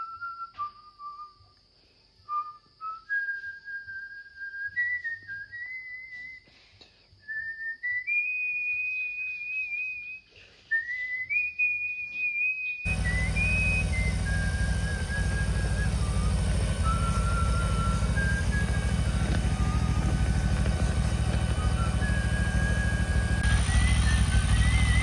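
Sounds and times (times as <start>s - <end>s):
person whistling a tune: 0.0s - 25.0s
motorcycle engine running: 12.9s - 25.0s.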